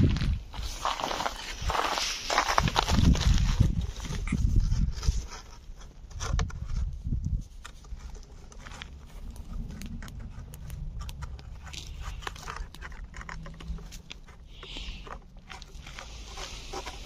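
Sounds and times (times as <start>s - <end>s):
low rumble: 8.6s - 14.4s.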